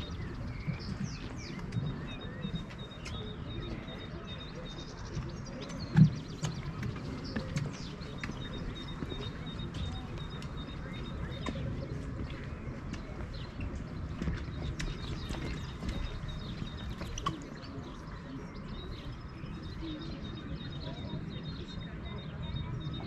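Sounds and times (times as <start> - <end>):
birds chirping and trilling: 0.0 - 23.0
footsteps on wooden planks: 5.1 - 18.0.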